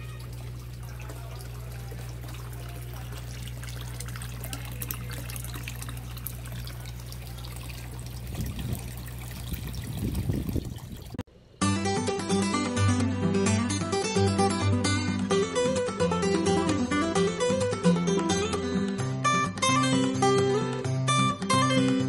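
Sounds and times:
water pouring into pond: 0.0s - 11.3s.

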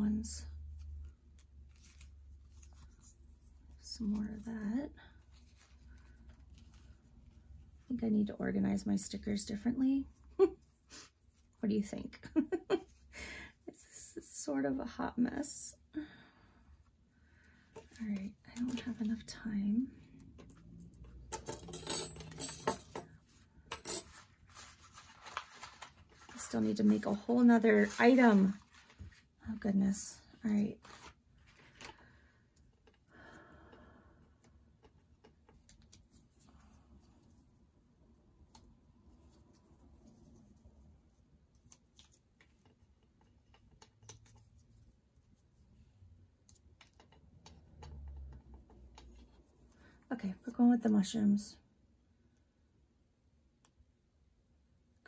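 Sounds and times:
paper stickers rustling: 0.9s - 3.6s, 24.1s - 29.2s, 30.8s - 31.9s.

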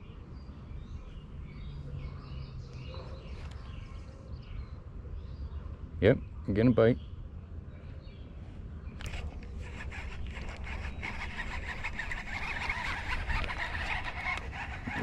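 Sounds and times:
fishing reel whirring rattle: 9.0s - 15.0s.

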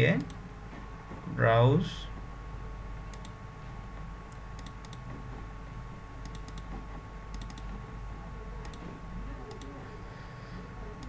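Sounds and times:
faint steady hum: 0.0s - 11.0s
computer mouse clicking: 3.1s - 3.4s, 4.3s - 5.1s, 6.2s - 7.7s, 8.6s - 8.9s, 9.5s - 9.8s.

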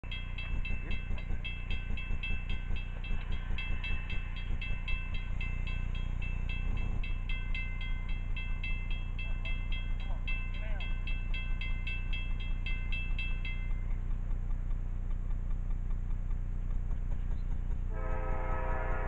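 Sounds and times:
crossing bell ringing: 0.0s - 14.0s, 17.9s - 19.0s
low rumble: 0.0s - 19.0s.

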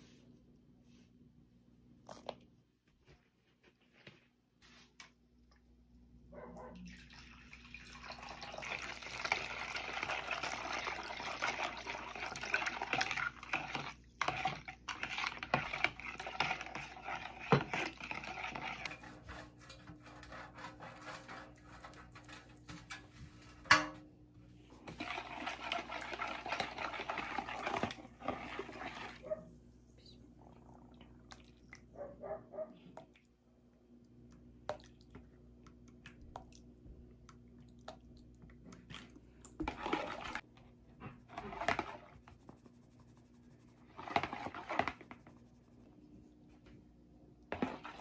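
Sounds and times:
water running from a tap: 6.9s - 12.9s.

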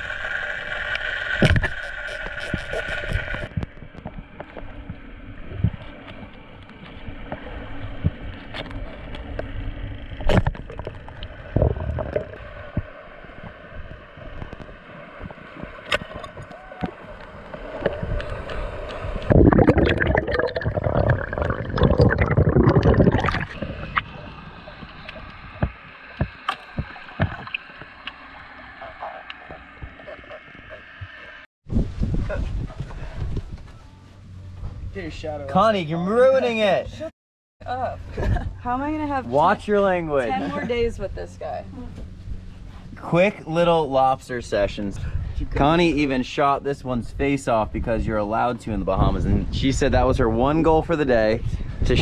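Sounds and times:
muffled underwater noise: 19.4s - 31.4s.

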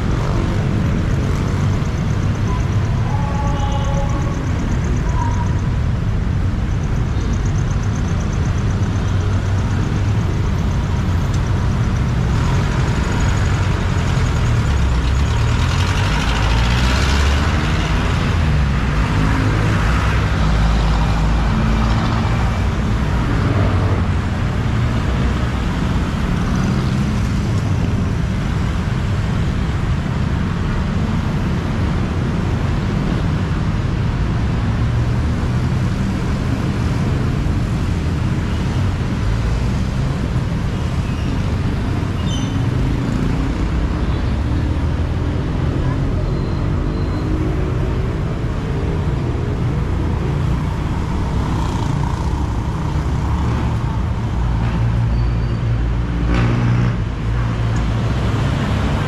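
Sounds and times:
heavy street traffic: 0.0s - 59.0s
loud vehicle passing: 55.8s - 59.0s.

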